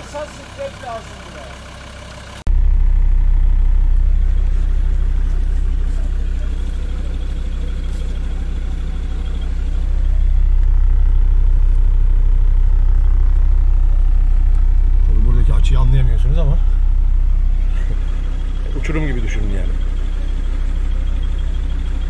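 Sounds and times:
diesel engine low rumble: 0.0s - 22.0s.

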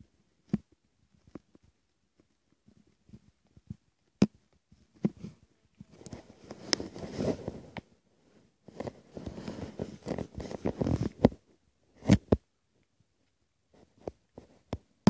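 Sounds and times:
camera handling rustling: 8.8s - 11.4s.

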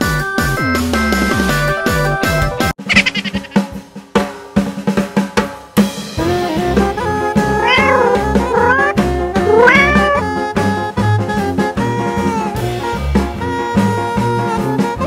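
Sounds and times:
bending melody phrases: 7.1s - 10.4s.

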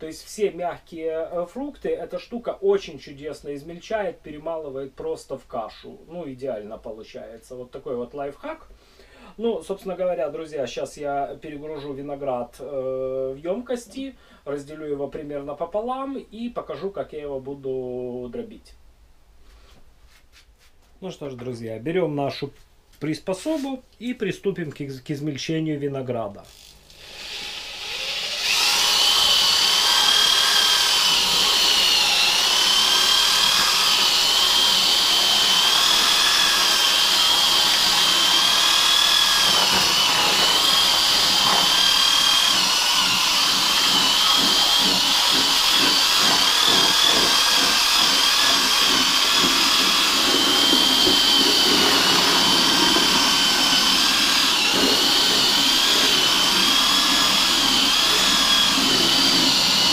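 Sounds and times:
electric drill whining: 26.5s - 59.9s
grapes being crushed in bucket: 28.5s - 59.9s.

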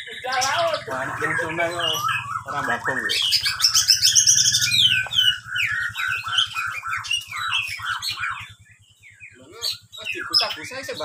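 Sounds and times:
bird singing chirps and whistles: 0.0s - 11.0s.

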